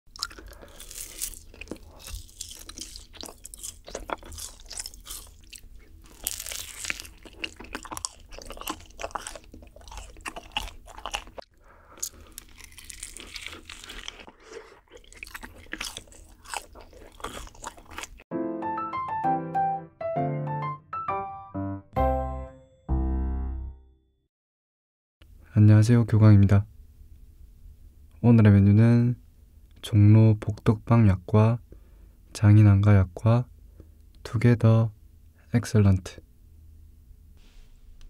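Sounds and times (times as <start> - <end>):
crunchy cookies being chewed: 0.1 - 18.2
music: 18.3 - 24.3.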